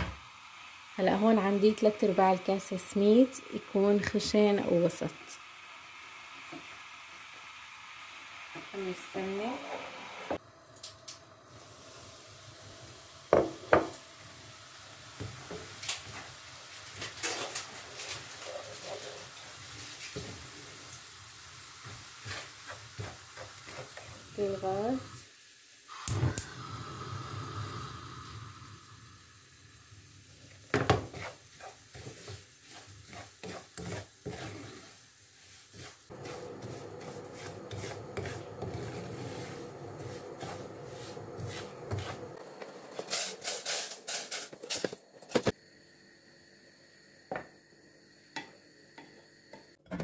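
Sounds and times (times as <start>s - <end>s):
wooden spoon scraping a frying pan: 15.6s - 20.5s, 21.8s - 24.7s, 30.7s - 44.6s.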